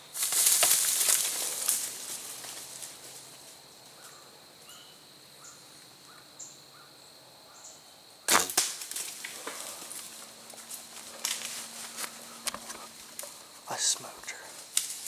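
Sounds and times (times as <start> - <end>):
snaps and rustles in dry leaves: 0.0 - 3.6, 8.3 - 13.6, 14.5 - 15.0
bow shot crack: 8.3 - 9.3.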